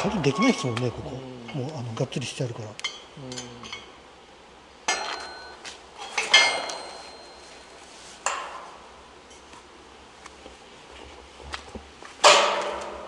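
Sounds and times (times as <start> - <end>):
metal gate clanking: 4.9 - 7.3.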